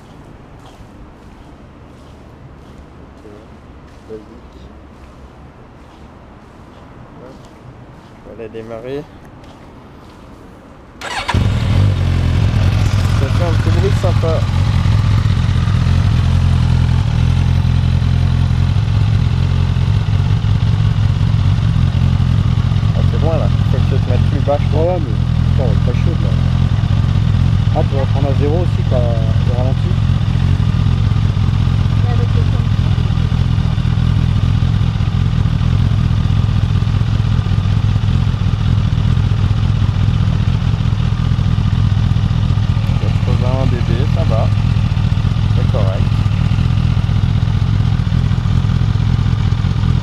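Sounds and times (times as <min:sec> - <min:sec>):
motorcycle engine idling: 0:11.0 - 0:50.0.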